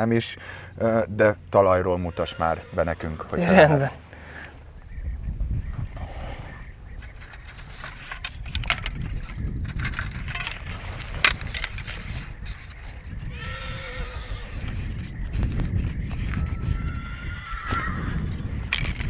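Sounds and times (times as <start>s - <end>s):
horse whinnying: 2.0s - 3.9s, 13.2s - 15.0s, 16.4s - 18.2s
arrows rattling and clicking: 7.0s - 13.3s, 18.4s - 19.0s.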